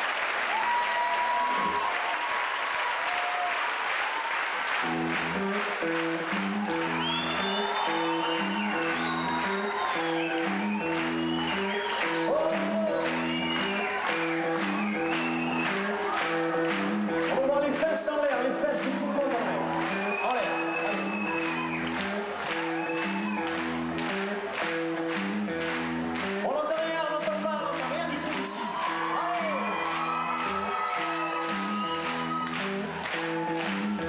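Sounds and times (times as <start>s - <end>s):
audience applause and cheering: 0.0s - 34.0s
band playing chord riff: 4.8s - 26.5s.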